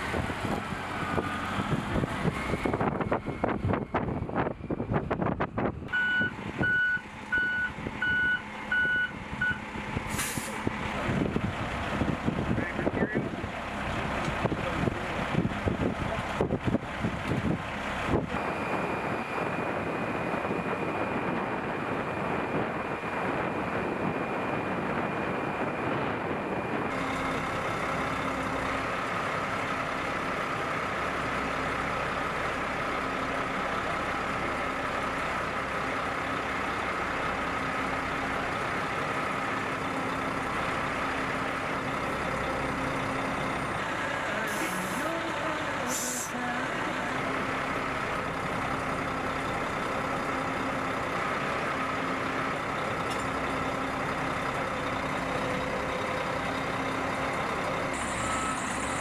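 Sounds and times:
wind noise: 0.0s - 6.8s, 8.8s - 13.3s, 14.3s - 27.0s
heavy truck engine running: 0.0s - 59.0s
short hisses: 10.1s - 10.6s.

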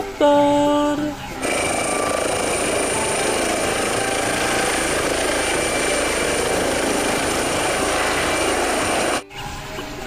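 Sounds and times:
helicopter rotor whirring: 1.4s - 9.2s.

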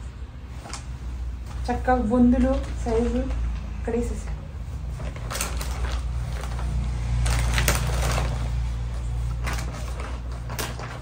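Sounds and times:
cloth rustling: 4.5s - 11.0s.

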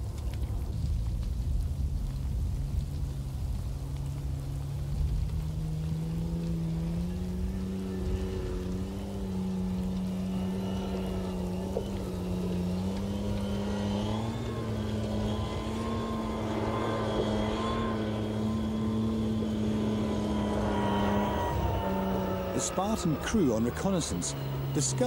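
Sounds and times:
tracked vehicle engine running: 0.0s - 25.0s.

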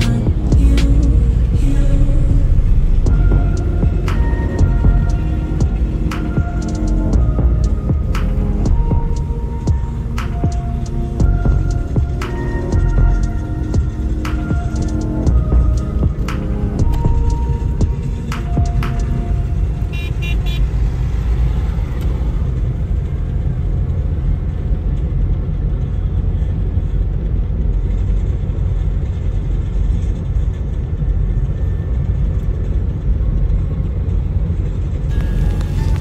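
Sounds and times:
car road rumble: 0.0s - 36.0s
car horn beeps: 18.5s - 20.8s.

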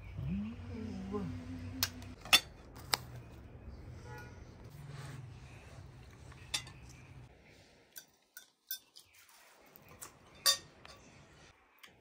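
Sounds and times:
cutlery and dishes clinking: 2.2s - 2.6s, 6.3s - 7.1s, 7.9s - 11.2s.

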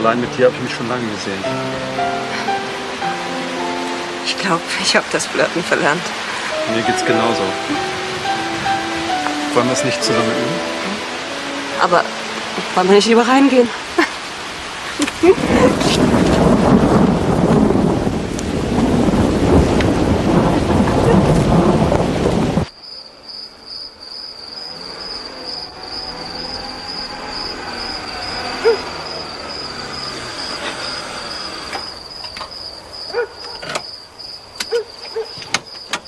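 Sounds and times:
heavy rain: 0.0s - 33.3s
crickets chirping: 0.2s - 36.0s
rumbling thunder: 15.0s - 22.7s, 25.9s - 32.0s
car pulling up: 24.7s - 32.6s.

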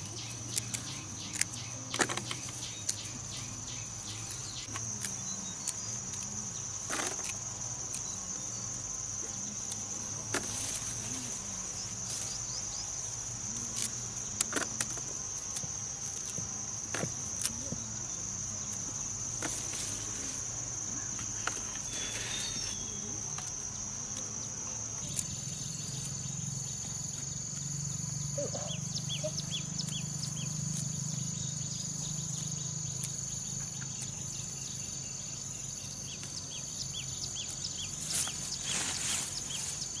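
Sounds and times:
high-pitched insect chorus: 0.0s - 40.0s.

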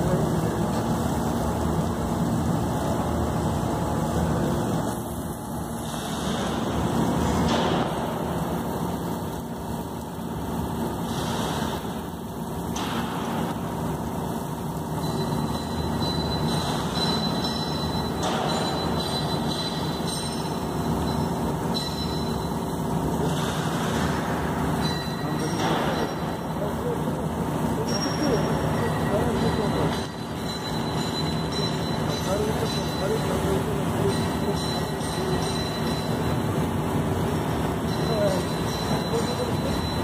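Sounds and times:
machinery hum: 0.0s - 40.0s
torch cutting steel: 5.8s - 9.6s.

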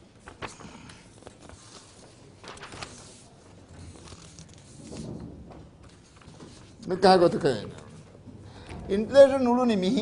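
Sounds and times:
paper rustling: 0.1s - 6.8s.

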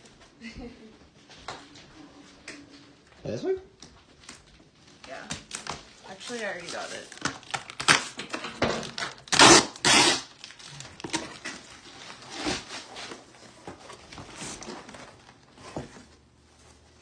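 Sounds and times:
wrapping paper tearing and rustling: 5.0s - 15.4s.

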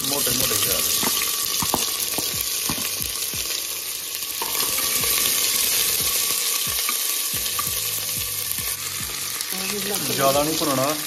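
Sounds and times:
onions sizzling in oil: 0.0s - 11.0s
metal ladle stirring: 0.5s - 3.0s.

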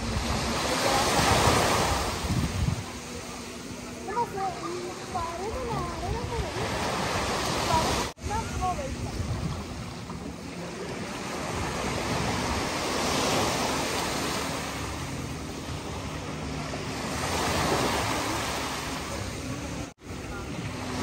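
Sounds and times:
sea waves breaking on beach: 0.0s - 21.0s.

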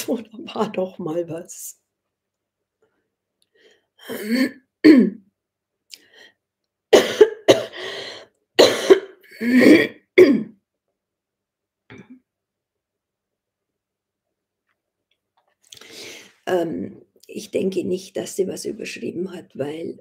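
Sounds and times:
woman coughing: 4.1s - 5.2s, 7.0s - 7.8s, 8.6s - 10.6s
woman clearing her throat: 4.1s - 5.3s, 8.6s - 10.6s.

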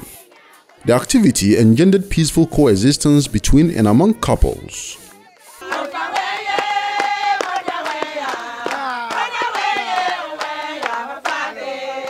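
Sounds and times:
women singing together: 0.0s - 0.8s, 4.7s - 12.0s
rhythmic hand clapping: 0.0s - 3.2s, 5.0s - 12.0s.

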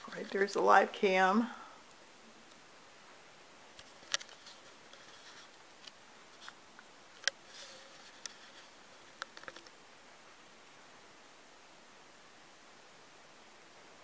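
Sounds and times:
faint sharp clicks and taps: 3.8s - 9.8s.

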